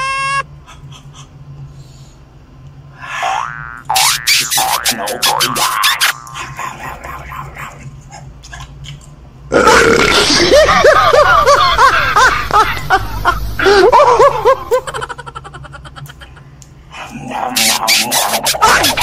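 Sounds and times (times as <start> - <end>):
burp-like vocal sound: 9.5 - 10.5.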